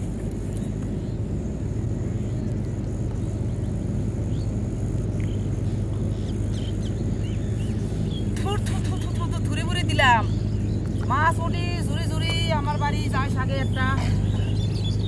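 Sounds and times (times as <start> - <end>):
steady low rumble: 0.0 - 15.0
high bird chirps: 2.3 - 11.8, 12.6 - 15.0.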